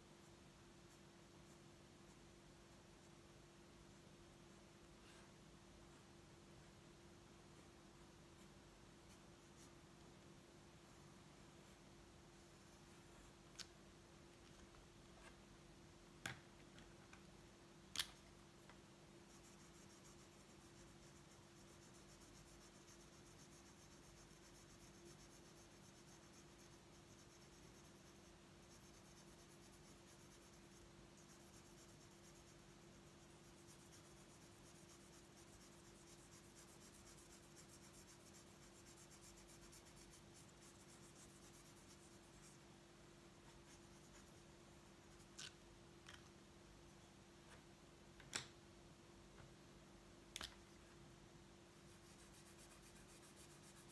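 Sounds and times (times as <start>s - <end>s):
faint steady hum: 0.0s - 53.9s
marker scratching on paper: 19.3s - 42.6s, 51.8s - 53.9s.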